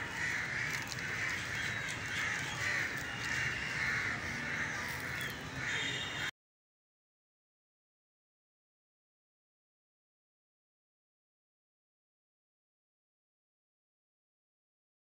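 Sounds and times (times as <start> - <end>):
crows cawing: 0.0 - 6.3.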